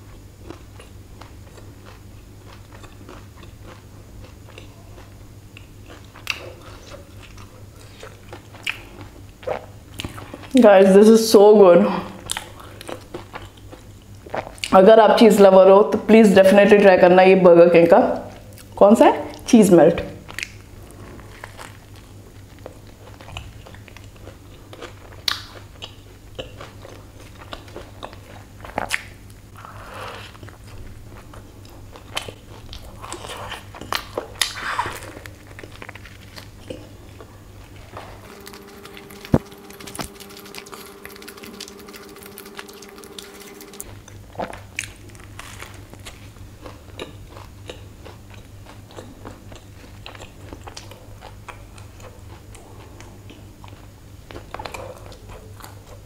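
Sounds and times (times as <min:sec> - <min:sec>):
biting and chewing food: 0:00.0 - 0:10.6, 0:20.2 - 0:56.0
low hum: 0:34.0 - 0:47.0.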